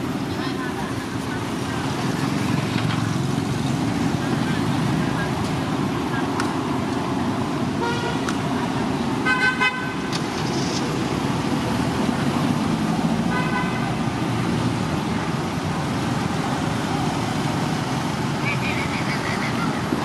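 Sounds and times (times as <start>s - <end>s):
passing traffic: 0.0s - 20.0s
car horn toots: 7.8s - 8.3s, 9.2s - 10.0s.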